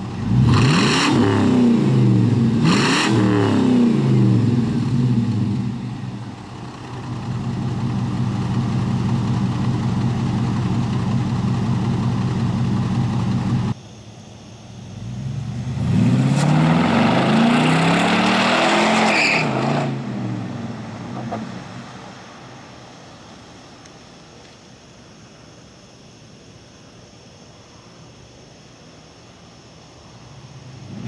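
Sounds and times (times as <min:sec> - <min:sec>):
car engine accelerating hard: 0:00.0 - 0:13.7, 0:15.2 - 0:22.0.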